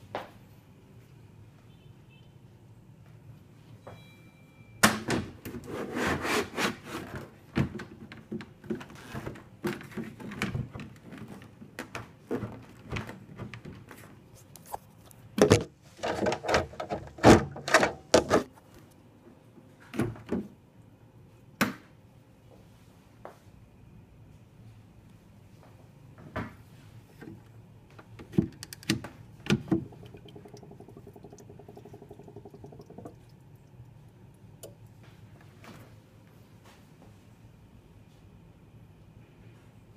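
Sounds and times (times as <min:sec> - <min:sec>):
plastic parts knocking and clicking: 0:15.4 - 0:18.5, 0:28.2 - 0:33.2.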